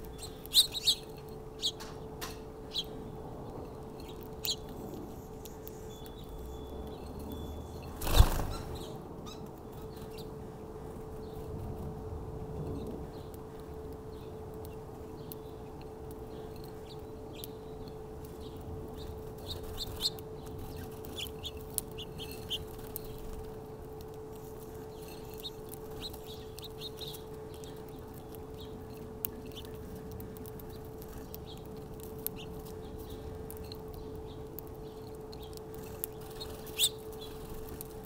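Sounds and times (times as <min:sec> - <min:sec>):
small birds chirping: 0:00.0 - 0:11.8, 0:12.5 - 0:38.0
steady low hum: 0:00.0 - 0:38.0.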